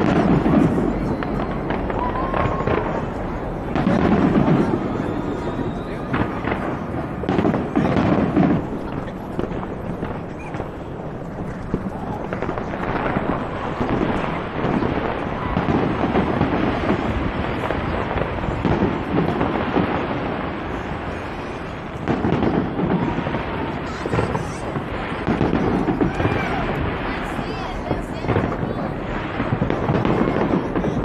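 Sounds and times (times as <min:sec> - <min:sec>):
fireworks booming and crackling: 0:00.0 - 0:31.0.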